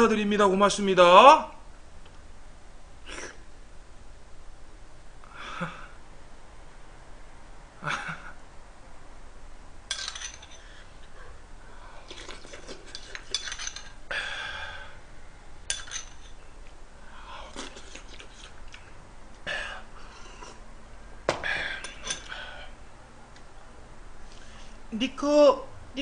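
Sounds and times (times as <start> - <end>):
metal spoon scraping a bowl: 9.9 - 10.7, 12.1 - 14.0, 15.7 - 16.4
man chewing: 11.9 - 13.3, 17.2 - 20.7.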